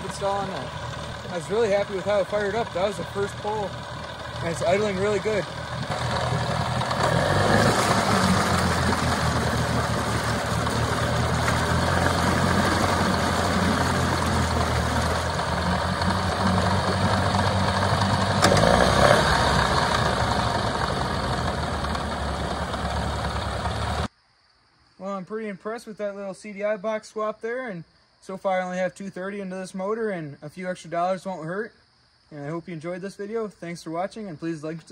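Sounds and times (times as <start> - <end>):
outboard engine idling: 0.0 - 24.1.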